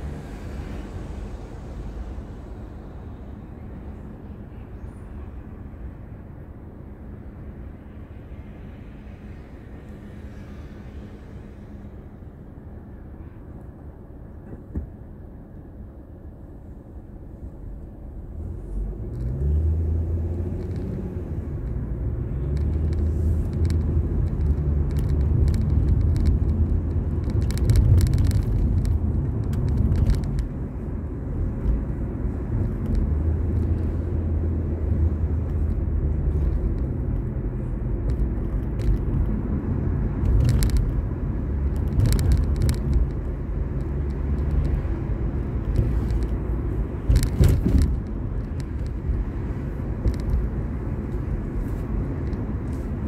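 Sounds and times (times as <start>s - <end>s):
car engine hum: 0.0s - 53.0s.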